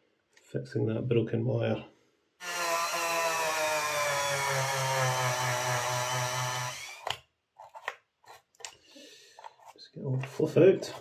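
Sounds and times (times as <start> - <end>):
small electric motor whirring: 2.4 - 7.1.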